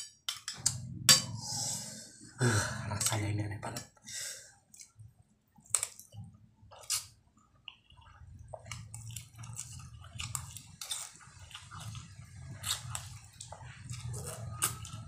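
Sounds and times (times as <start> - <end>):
person chewing and slurping noodles: 4.5 - 15.0.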